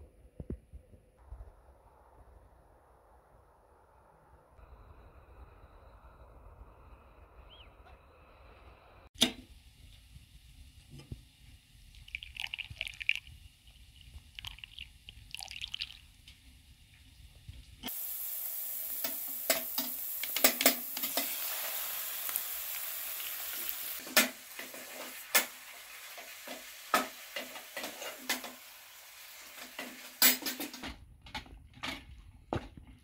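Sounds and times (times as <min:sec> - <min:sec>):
chicken sizzling in a pot: 0:16.0 - 0:30.8.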